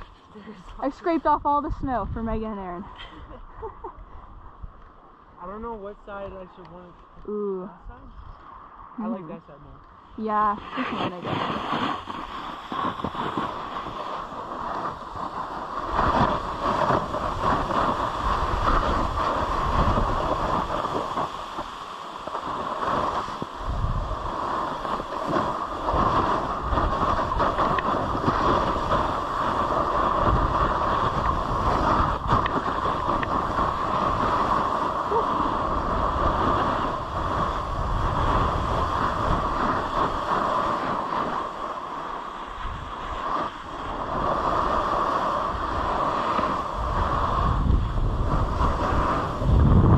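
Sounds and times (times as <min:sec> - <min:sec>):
wind buffeting microphone: 0:00.0 - 0:09.0, 0:09.6 - 0:49.9
snowboard scraping over snow: 0:10.2 - 0:49.9.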